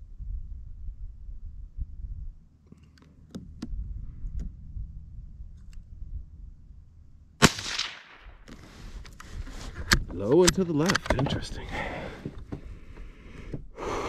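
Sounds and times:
rifle shot: 7.4 - 8.5.

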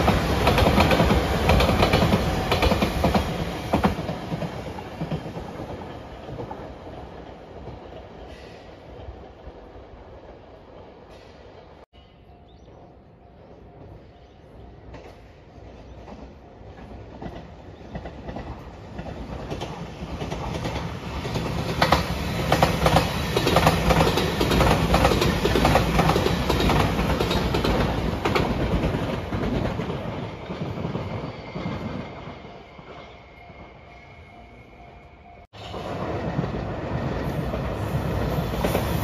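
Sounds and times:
train rumbling past: 0.0 - 39.0
wheels clacking over rail joints: 14.9 - 32.2.

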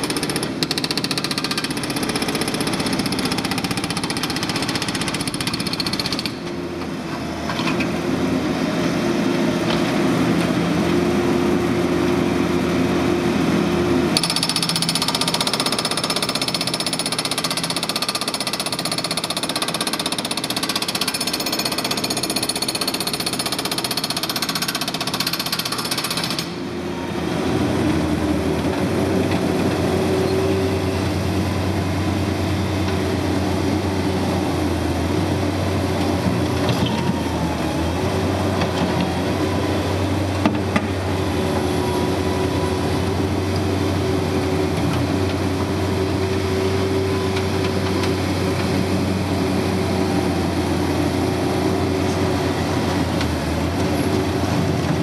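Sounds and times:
hydraulic breaker hammering concrete: 0.0 - 6.4, 14.2 - 26.6
loader engine running: 26.5 - 55.0.

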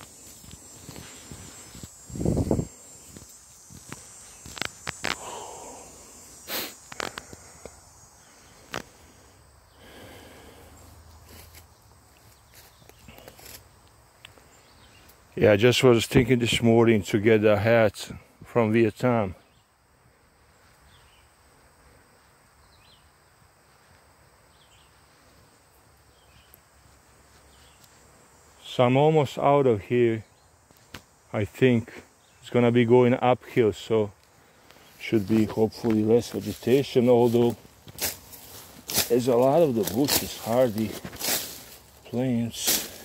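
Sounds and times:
faint outdoor background: 0.0 - 43.0
insect drone: 0.0 - 43.0
clicks and snaps in dry brush: 3.8 - 5.2, 6.8 - 7.4
short breath: 5.1 - 10.9.

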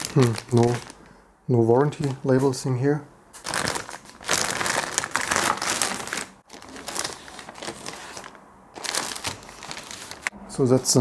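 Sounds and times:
plastic bag crinkling: 0.0 - 1.1, 1.9 - 2.4, 3.4 - 10.3.

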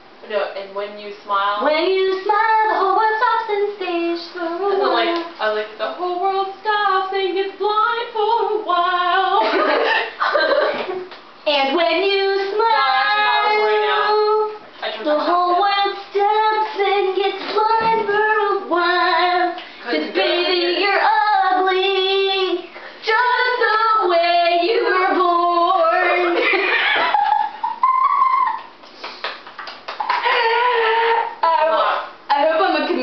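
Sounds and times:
girl singing unaccompanied: 1.6 - 9.4, 11.5 - 26.4.

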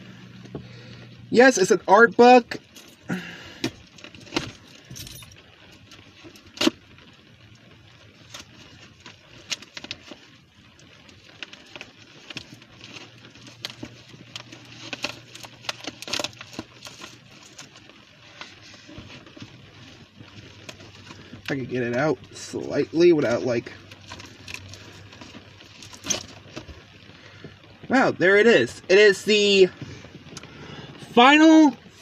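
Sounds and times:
faint low hum: 0.0 - 5.4
package rustling and crinkling: 2.2 - 32.0.

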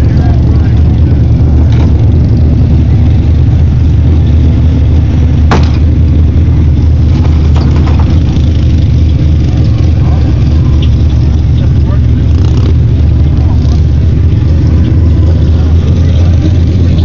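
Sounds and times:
engine idling: 0.0 - 17.0
sharp knock: 5.5 - 5.9.

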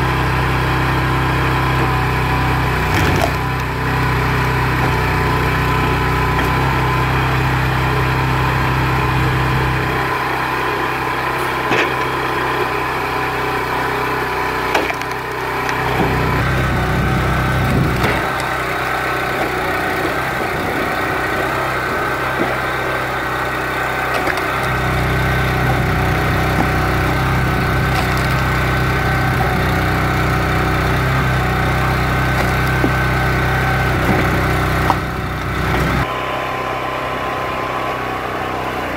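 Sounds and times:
small gasoline engine running: 0.0 - 38.9
wood splitting cracks: 2.8 - 3.9, 14.6 - 16.7, 17.4 - 23.0, 23.9 - 30.3, 32.0 - 36.0.

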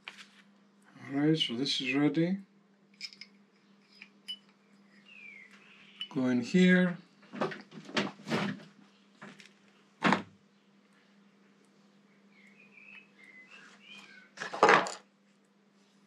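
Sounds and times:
faint high chirps: 3.1 - 6.3, 12.0 - 14.4.

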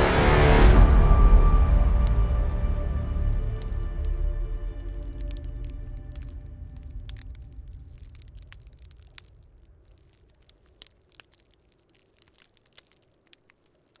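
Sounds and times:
low rumble: 0.0 - 10.9
fire crackling and popping: 0.5 - 14.0.

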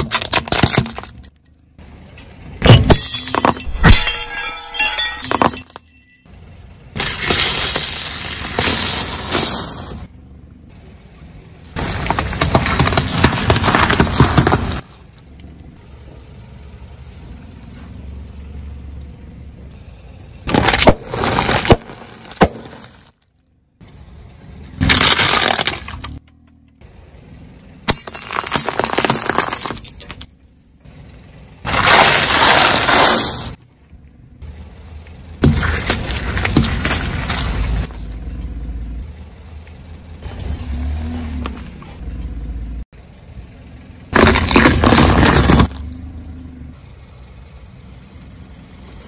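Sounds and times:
plastic and glass cracking: 0.0 - 1.4, 20.5 - 23.3, 24.8 - 26.2, 31.7 - 33.4, 44.2 - 45.8
car rumble: 0.0 - 49.0.

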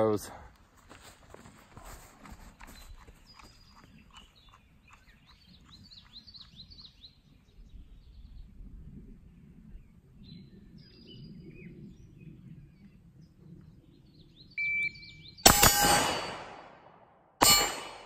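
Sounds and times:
birds chirping: 2.4 - 8.4, 9.7 - 16.4.

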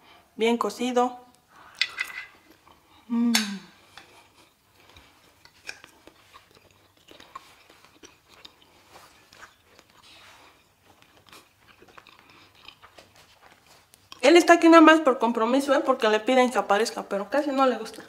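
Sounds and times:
chewing crisp food: 3.8 - 14.3.

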